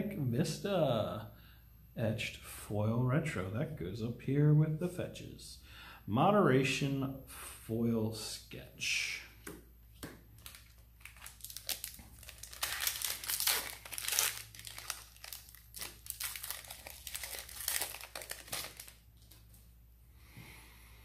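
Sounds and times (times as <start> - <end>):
wrapper tearing and crinkling: 10.4 - 19.4.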